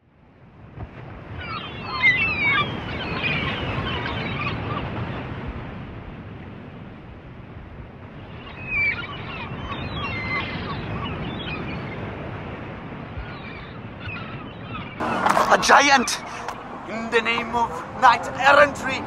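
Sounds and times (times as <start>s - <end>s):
wind: 0.0s - 19.0s
distant calls: 13.3s - 19.0s
surf: 15.0s - 19.0s.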